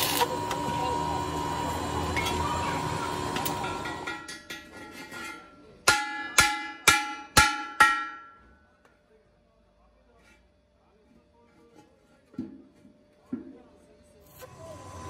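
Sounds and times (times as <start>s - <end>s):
electric arc welding: 0.0s - 2.0s
hammer striking steel rim: 5.8s - 8.5s.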